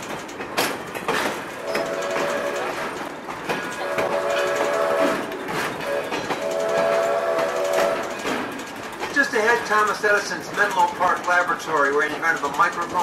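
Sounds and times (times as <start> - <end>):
train wheels clattering on rails: 0.0 - 13.0
steam locomotive whistle blasts: 1.6 - 2.8, 3.8 - 8.2.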